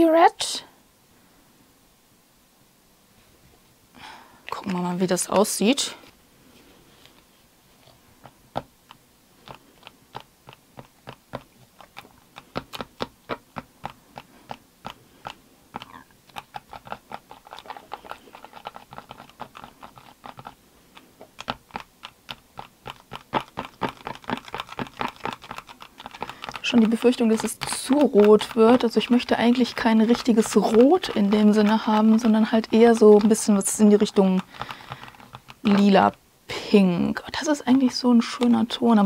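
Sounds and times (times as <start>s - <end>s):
whisk squelching in thick dye: 15.8s - 36.2s.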